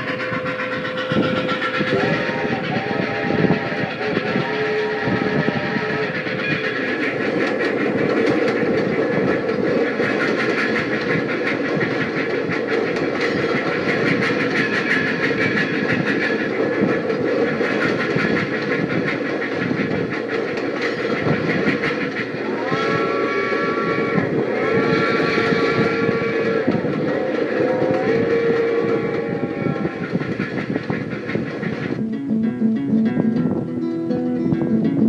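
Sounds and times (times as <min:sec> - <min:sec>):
toy train whistle: 0:00.0 - 0:07.1, 0:22.4 - 0:30.6
toy train rumbling on track: 0:00.0 - 0:33.7
wheels clicking on rails: 0:00.0 - 0:35.0.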